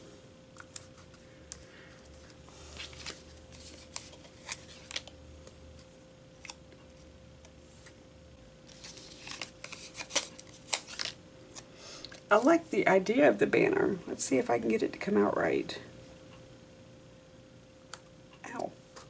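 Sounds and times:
paper clicks and rustles: 0.6 - 6.6, 8.7 - 11.6.

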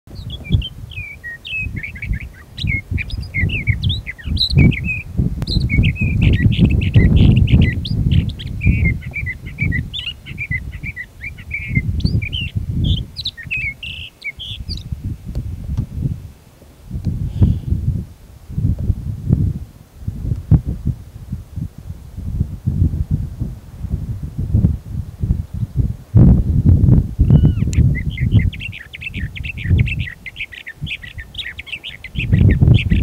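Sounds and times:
bird singing warbling song: 0.1 - 15.1, 27.2 - 33.0
gusty low rumble: 1.6 - 30.1.

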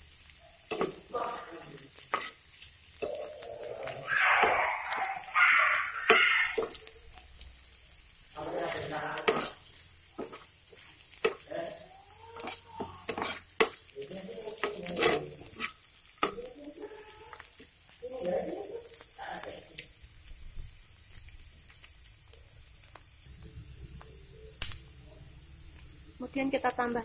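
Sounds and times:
onions sizzling in a pan: 0.0 - 27.0
spatula scraping and tapping pan: 0.2 - 5.0, 6.1 - 6.9, 8.7 - 11.6, 12.4 - 16.6.

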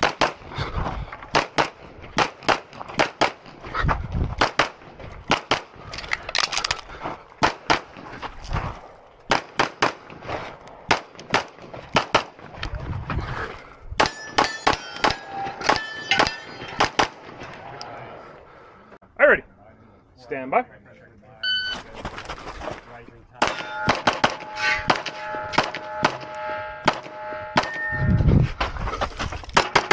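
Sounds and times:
pistol shots: 0.0 - 0.4, 1.3 - 3.5, 4.4 - 5.8, 9.3 - 10.2, 10.9 - 12.4, 23.4 - 27.9
metallic clang of steel targets: 14.0 - 17.2, 23.4 - 28.3.

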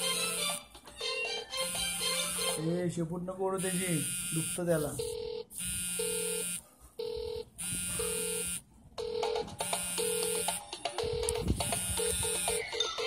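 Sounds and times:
low steady electronic tone: 1.6 - 2.6, 3.6 - 10.6, 11.2 - 12.6
high ringing tone: 3.6 - 12.8.

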